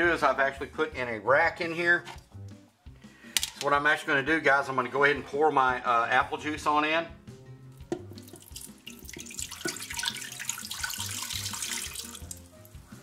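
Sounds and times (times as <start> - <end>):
liquid splashing on metal: 7.8 - 12.5
juice pouring into metal pot: 7.8 - 12.6.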